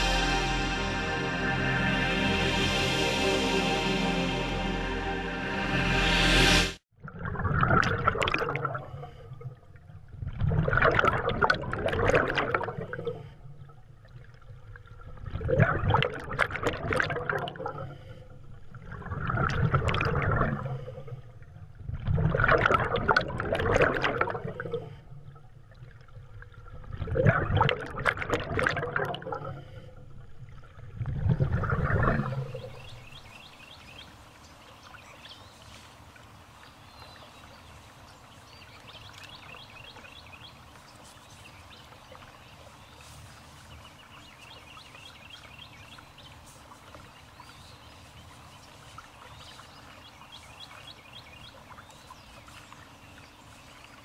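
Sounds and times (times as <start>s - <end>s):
diver regulator bubbles rushing: 7.0s - 33.3s.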